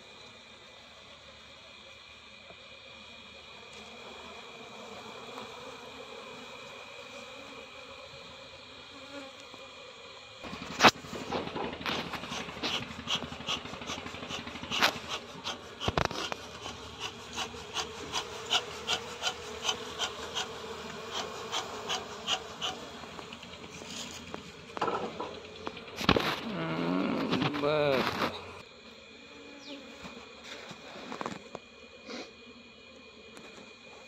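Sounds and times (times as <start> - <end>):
bees buzzing: 0.0 - 34.0
sharp scraping strokes: 10.5 - 24.5.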